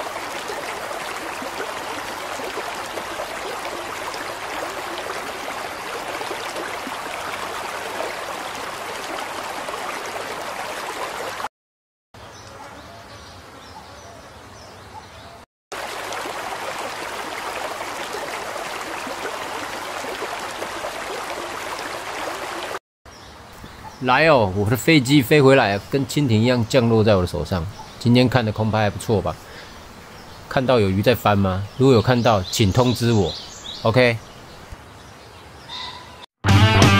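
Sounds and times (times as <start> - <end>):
river water rushing: 0.0 - 11.5, 15.7 - 22.8.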